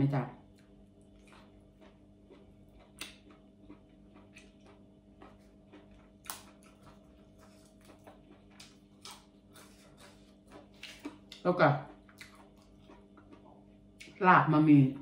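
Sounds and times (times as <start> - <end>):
steady low hum: 0.0 - 15.0
food chewing: 0.4 - 14.2
herb sprigs snapping: 6.2 - 6.8.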